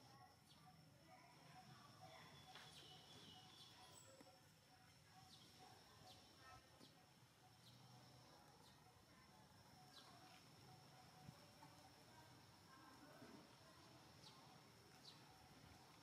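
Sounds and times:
steady high-pitched whine: 0.0s - 16.0s.

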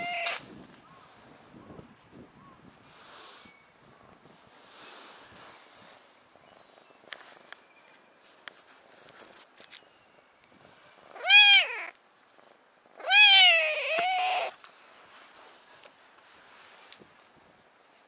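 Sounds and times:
cat meowing: 0.0s - 0.4s, 11.1s - 12.0s, 13.0s - 14.6s
soft rustling: 4.2s - 11.2s, 11.8s - 12.7s, 13.9s - 18.0s.

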